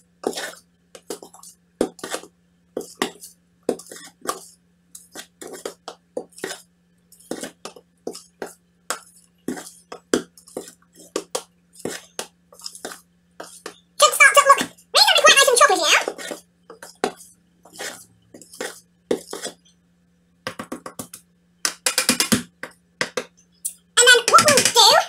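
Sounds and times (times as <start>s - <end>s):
faint steady hum: 0.0s - 25.0s
metal spoon stirring batter in bowl: 0.1s - 14.0s.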